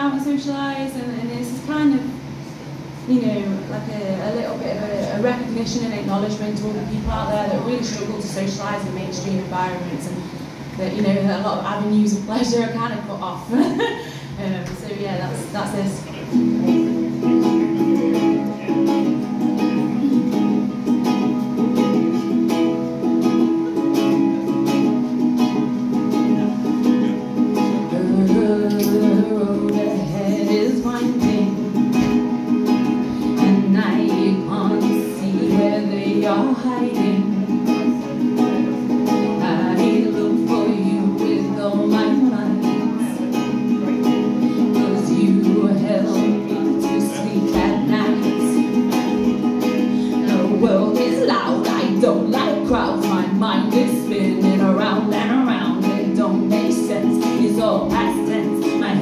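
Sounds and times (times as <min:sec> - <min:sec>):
woman singing: 0:03.1 - 0:10.2, 0:27.1 - 0:59.0
ukulele playing: 0:16.0 - 0:59.0.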